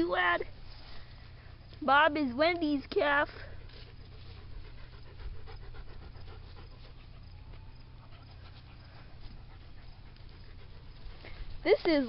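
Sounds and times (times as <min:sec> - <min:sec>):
dog panting: 0:03.3 - 0:12.0.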